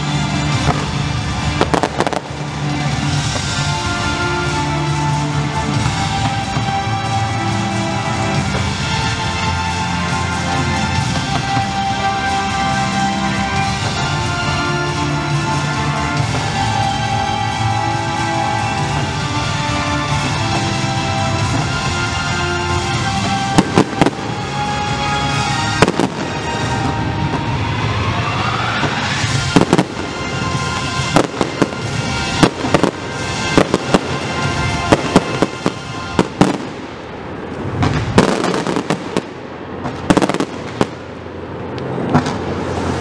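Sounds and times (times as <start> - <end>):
fireworks bursting: 0.0 - 43.0
music playing: 0.0 - 43.0.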